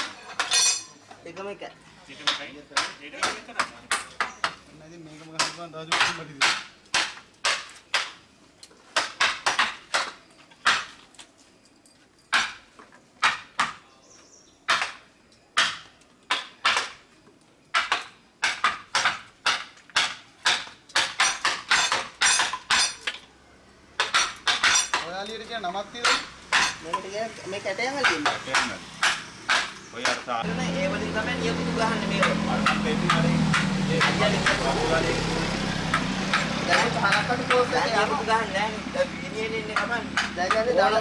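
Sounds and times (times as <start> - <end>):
hammer striking chisel into wood: 2.2 - 4.6, 5.4 - 8.2, 14.7 - 15.0, 15.6 - 17.0, 17.7 - 23.0, 26.0 - 26.9, 28.0 - 30.2, 32.2 - 34.6, 39.8 - 40.7.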